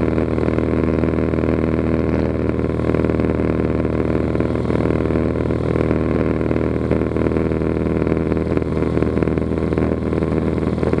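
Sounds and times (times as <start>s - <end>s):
airplane engine and propeller droning: 0.0s - 11.0s.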